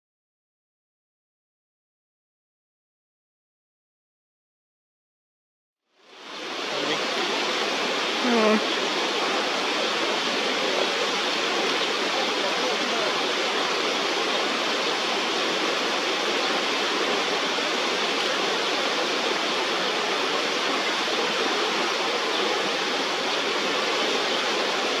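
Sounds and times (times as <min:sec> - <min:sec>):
river rushing over rocks: 0:06.0 - 0:25.0.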